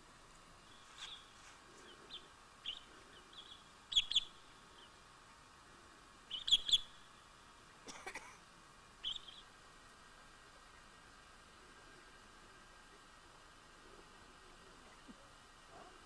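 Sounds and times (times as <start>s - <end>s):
high bird chirps: 0.7s - 5.0s, 6.3s - 7.1s, 9.0s - 9.5s.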